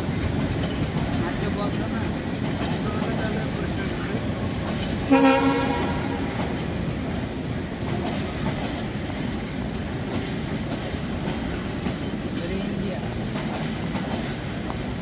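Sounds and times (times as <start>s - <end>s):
train rumble and wheel clatter: 0.0s - 15.0s
locomotive horn blast: 5.1s - 6.4s.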